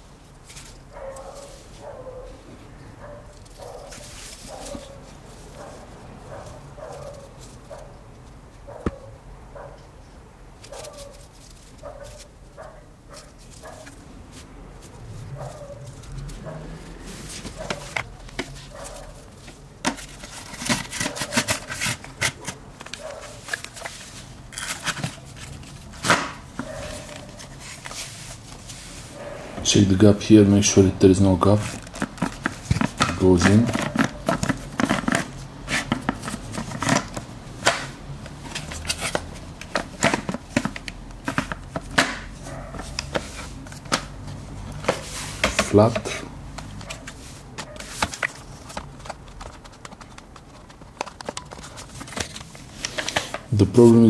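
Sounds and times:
plastic parts clicking: 48.1s - 53.4s.

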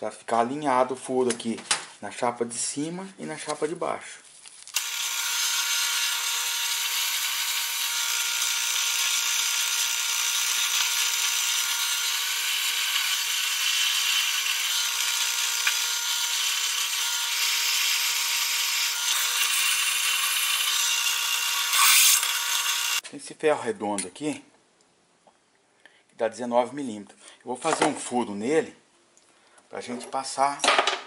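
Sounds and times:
drill bit cutting metal: 4.8s - 23.0s
drill press motor whine: 4.8s - 23.0s.

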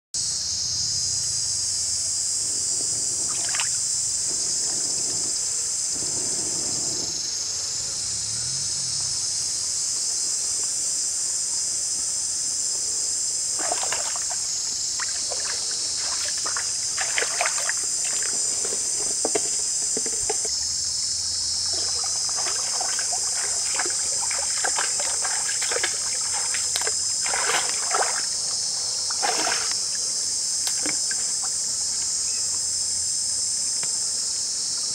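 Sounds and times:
insects chorus: 0.2s - 34.9s
splashes in water: 3.3s - 3.8s, 13.6s - 19.0s, 21.7s - 28.4s, 29.1s - 29.9s.

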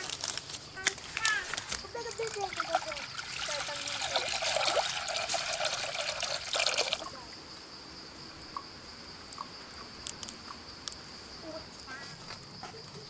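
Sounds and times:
water pouring into clay pot: 2.0s - 7.2s.

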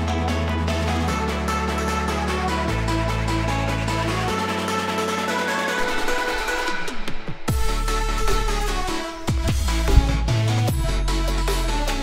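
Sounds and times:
electronic music with steady beat: 0.0s - 12.0s
heavy bass: 7.5s - 12.0s.

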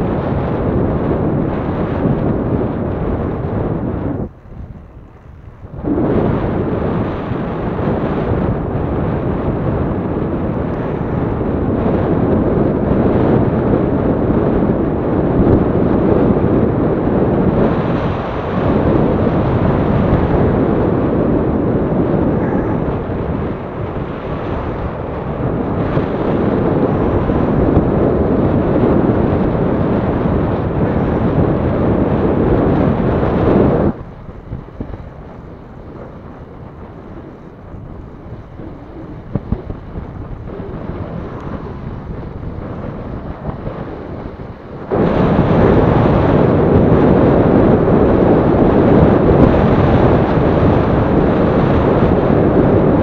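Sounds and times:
wind buffeting microphone: 0.0s - 53.0s.

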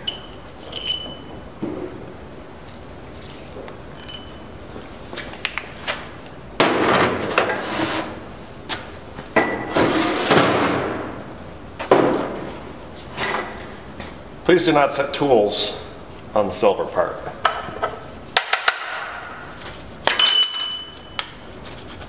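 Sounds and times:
metal tooling clanking and scraping: 0.0s - 1.3s.

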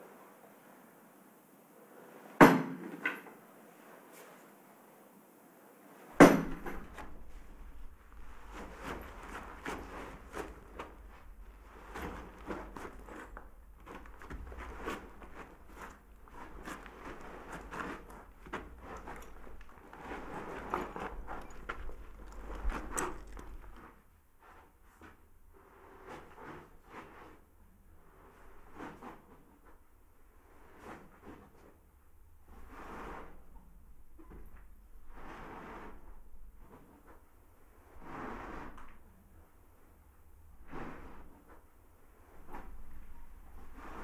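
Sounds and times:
footsteps on dirt floor: 6.5s - 24.0s.

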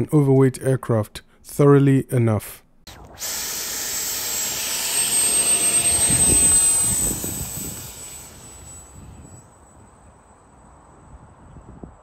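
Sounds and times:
electric ducted-fan jet whine: 2.9s - 11.2s.

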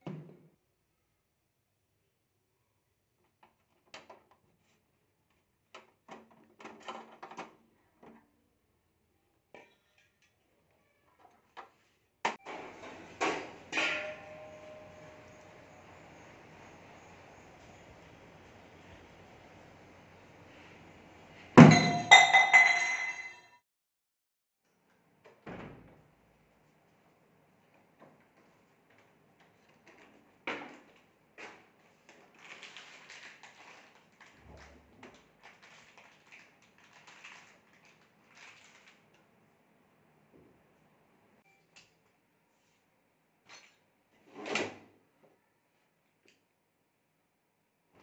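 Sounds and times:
loud crash with ringing tones: 13.6s - 15.4s, 21.6s - 23.1s.

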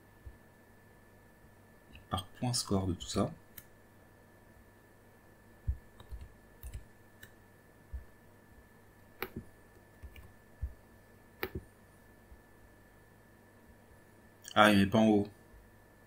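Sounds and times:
computer mouse and keyboard clicks: 6.0s - 7.4s, 9.2s - 9.4s, 10.0s - 10.3s, 11.4s - 11.6s.

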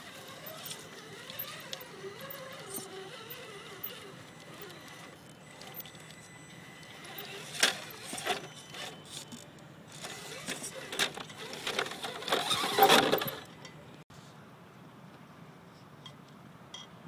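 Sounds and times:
electric motor and drivetrain whir: 0.0s - 13.5s
tyres scraping against stones: 0.0s - 13.5s.

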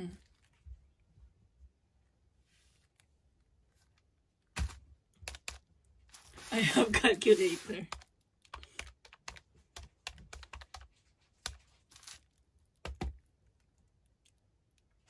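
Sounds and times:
calculator buttons clicking: 7.9s - 10.8s.

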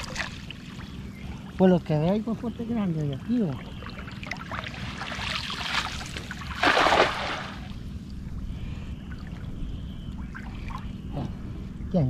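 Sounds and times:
water splashing: 0.0s - 0.7s, 3.3s - 7.8s.

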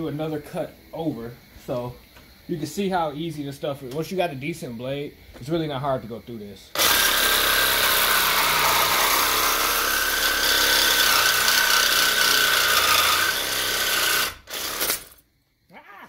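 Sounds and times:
reciprocating saw cutting steel: 6.8s - 15.2s.

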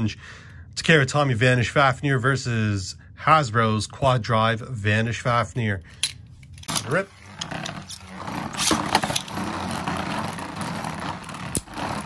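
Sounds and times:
spinning tops whirring and scraping: 6.6s - 12.0s.

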